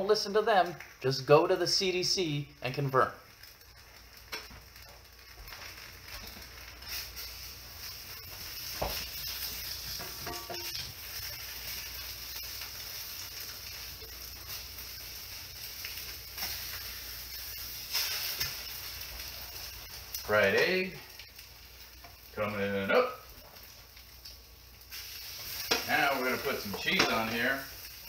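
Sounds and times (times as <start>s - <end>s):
eggs sizzling in a frying pan: 0.0s - 28.0s
utensil knocking and scraping pan: 9.9s - 10.8s.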